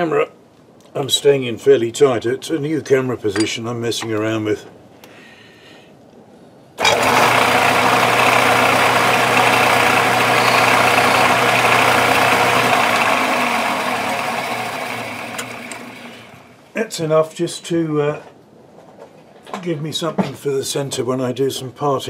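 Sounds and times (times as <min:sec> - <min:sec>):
metal lathe humming: 0:06.8 - 0:16.6.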